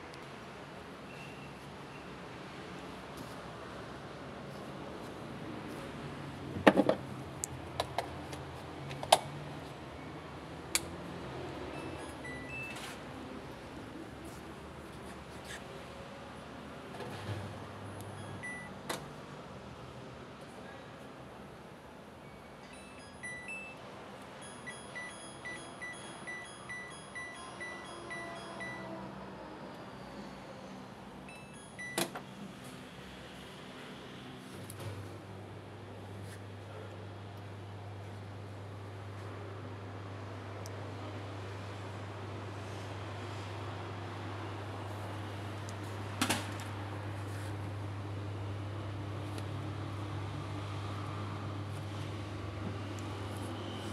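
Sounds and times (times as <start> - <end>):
washing machine rising tones: 9.8 - 12.8, 17.6 - 18.8, 22.2 - 23.8, 24.4 - 30.4, 31.2 - 32.1
short beeps: 11.7 - 12.8, 18.1 - 18.7, 22.2 - 23.8, 24.4 - 29.0.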